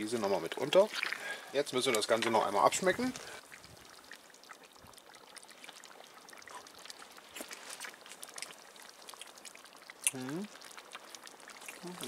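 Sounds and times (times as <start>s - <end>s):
sauce bubbling and popping: 0.0s - 12.0s.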